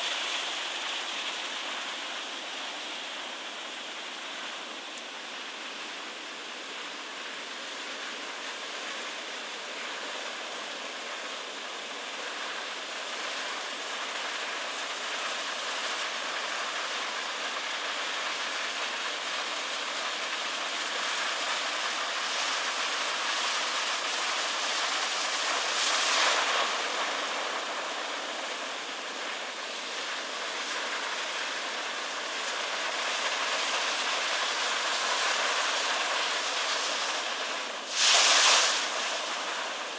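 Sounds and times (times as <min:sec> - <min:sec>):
wave crashing: 0:35.0 - 0:39.9
heavy surf breaking: 0:37.5 - 0:39.9.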